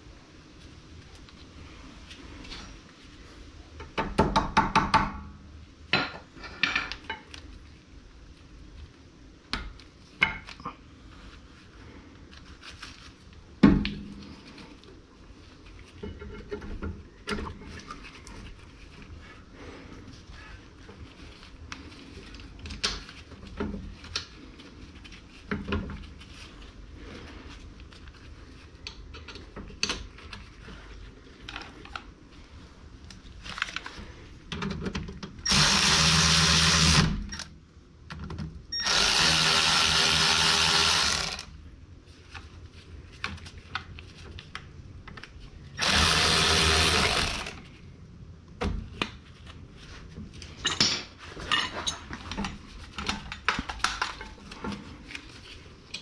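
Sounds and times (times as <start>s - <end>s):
power tool running: 35.5s - 37.2s, 38.8s - 41.5s, 45.8s - 47.6s.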